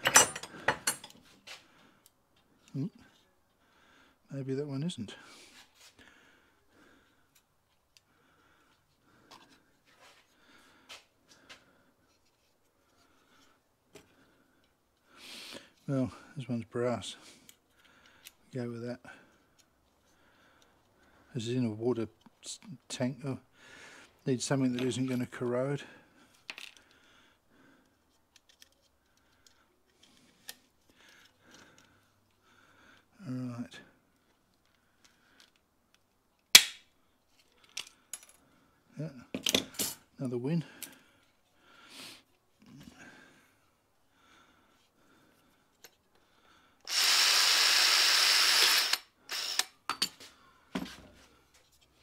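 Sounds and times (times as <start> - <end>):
cordless drill boring metal: 46.8 - 49.8.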